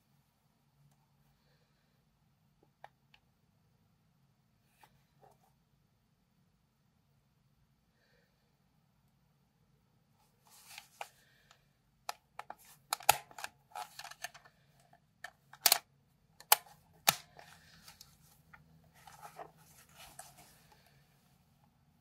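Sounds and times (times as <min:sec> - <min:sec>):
sharp plastic clicks: 0:15.2 - 0:17.4.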